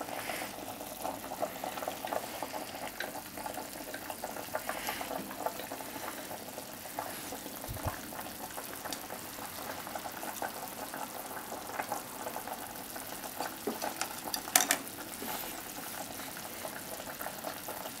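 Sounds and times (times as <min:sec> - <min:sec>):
broth bubbling in a pot: 0:00.0 - 0:18.0
chopsticks moving food: 0:13.4 - 0:15.6.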